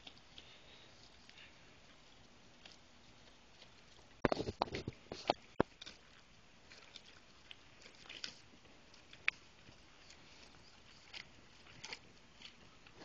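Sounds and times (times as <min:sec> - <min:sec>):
light clicks and crunches: 0:00.0 - 0:13.0.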